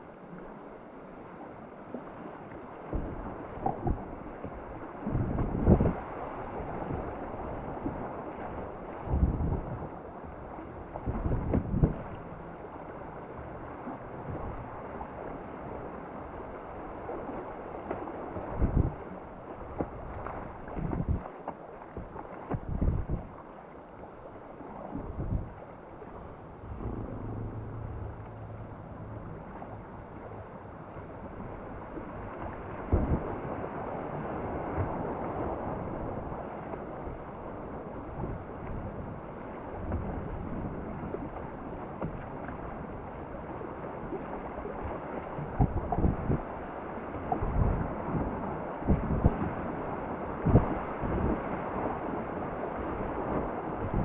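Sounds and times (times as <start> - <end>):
rushing river whitewater: 25.6 - 41.9.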